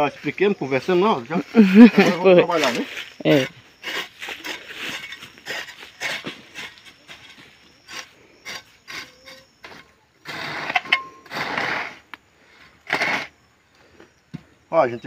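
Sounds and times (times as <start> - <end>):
hoe chopping and scraping soil: 2.0 - 12.1, 12.7 - 13.4.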